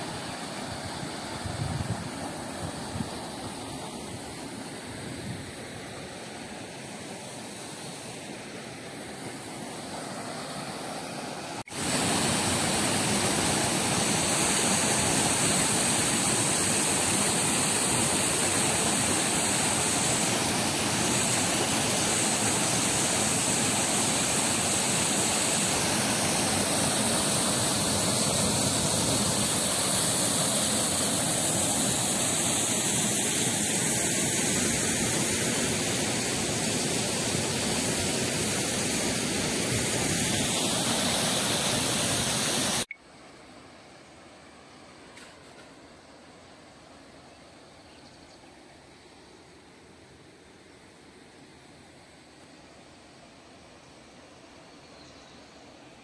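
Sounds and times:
stream rushing over rocks: 0.0 - 42.9
waterfall pouring into pool: 11.7 - 42.9.

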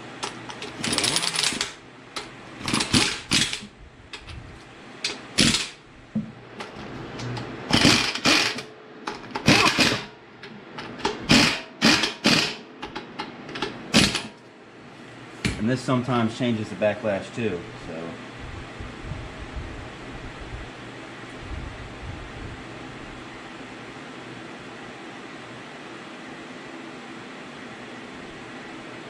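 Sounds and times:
impact wrench hammering: 0.2 - 3.7, 5.0 - 6.3, 7.7 - 10.1, 10.8 - 14.3.

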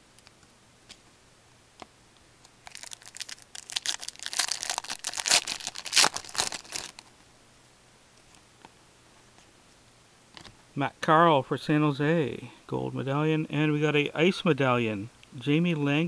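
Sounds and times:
foil wrapper tearing and crinkling: 2.6 - 7.0.

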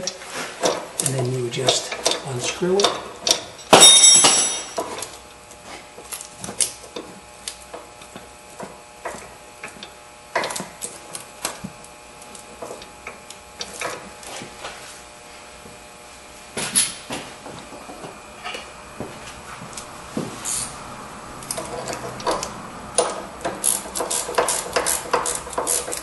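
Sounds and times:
ringing metal clank: 3.7 - 4.8.

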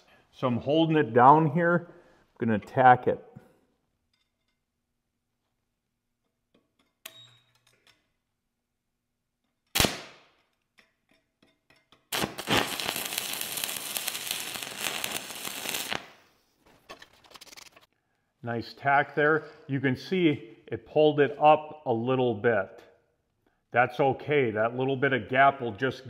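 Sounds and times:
welding arc crackling: 12.1 - 16.2.

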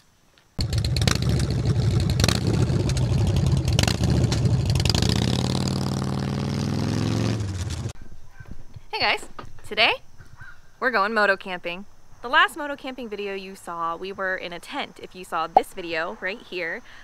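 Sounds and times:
motorcycle engine revving: 0.6 - 8.0.

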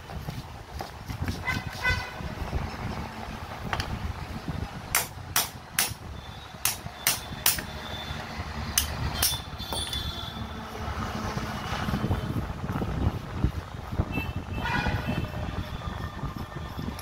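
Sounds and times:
hammer striking steel chisel: 4.9 - 6.0, 6.6 - 7.8, 8.8 - 10.3.

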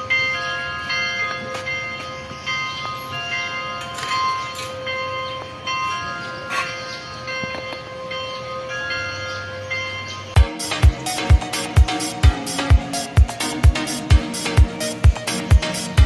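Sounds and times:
bell-like melody: 0.0 - 16.0.

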